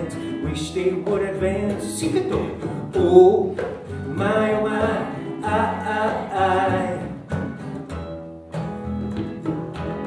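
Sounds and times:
acoustic guitar strumming: 0:00.0 - 0:10.0
double bass: 0:00.0 - 0:10.0
hand drum hits: 0:01.0 - 0:05.1.

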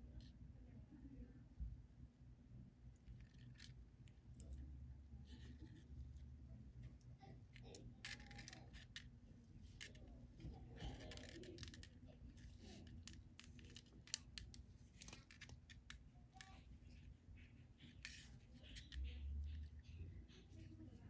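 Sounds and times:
fishing line clicks and scratches: 0:07.6 - 0:21.0.

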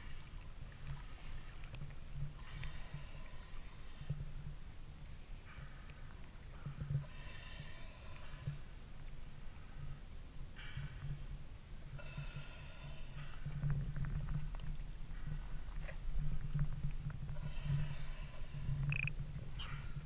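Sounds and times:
sea water sloshing: 0:00.0 - 0:10.0.

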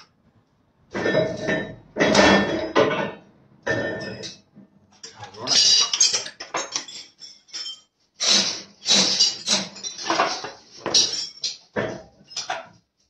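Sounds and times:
metallic clanks of steel tools: 0:05.0 - 0:12.6.

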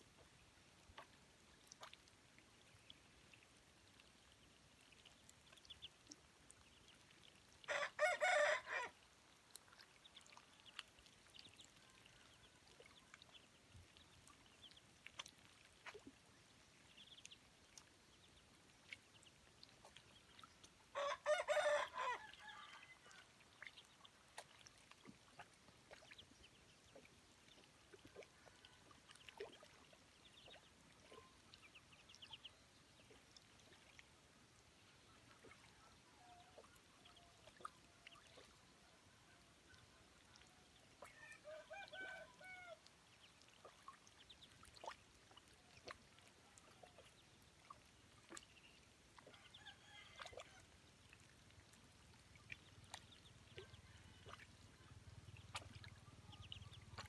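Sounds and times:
bills dabbling in muddy water: 0:00.0 - 0:57.0
ducklings peeping: 0:04.9 - 0:06.0, 0:16.8 - 0:17.4, 0:55.2 - 0:57.0
rooster crowing: 0:07.7 - 0:08.9, 0:21.0 - 0:22.9.

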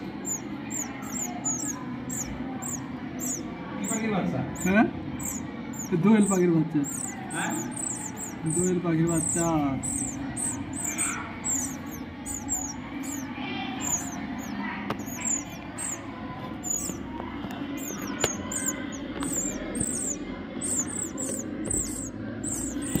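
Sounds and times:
nestlings cheeping: 0:00.0 - 0:23.0.

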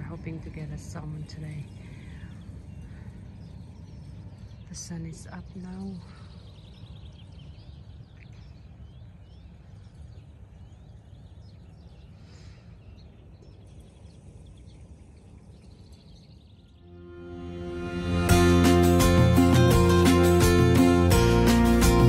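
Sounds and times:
small birds chirping: 0:00.0 - 0:16.9
steady low rumble: 0:00.0 - 0:22.0.

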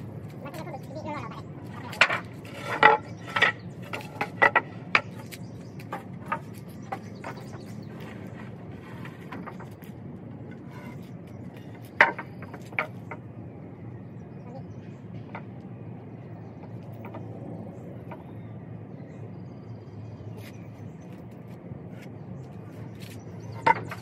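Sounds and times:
steady low hum: 0:00.0 - 0:24.0
sharp knocks and clicks: 0:01.9 - 0:08.3, 0:11.6 - 0:13.2.

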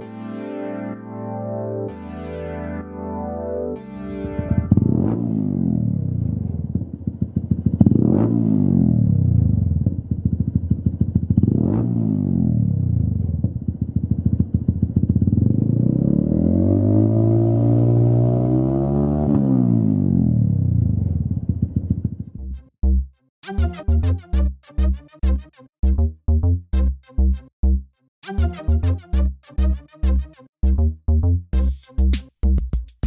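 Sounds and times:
motorcycle engine revving: 0:04.3 - 0:22.4.

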